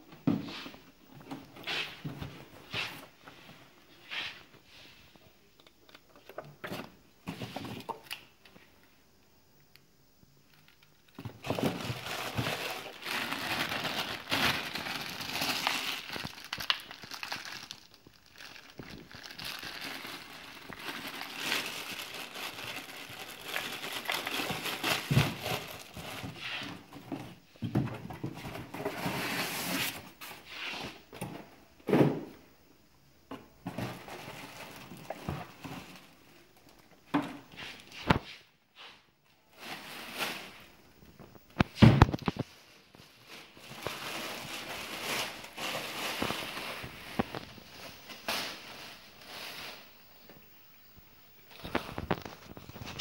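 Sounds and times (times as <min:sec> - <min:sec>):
plastic bag crinkling: 0:10.5 - 0:27.0, 0:33.9 - 0:37.0, 0:39.5 - 0:50.4, 0:51.4 - 0:53.0.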